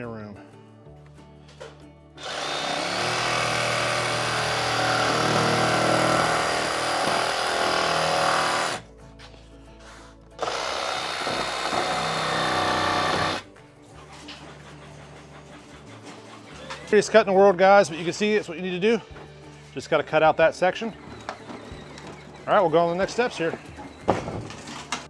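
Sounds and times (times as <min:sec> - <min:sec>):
jigsaw cutting: 0:02.2 - 0:08.8, 0:10.4 - 0:13.4.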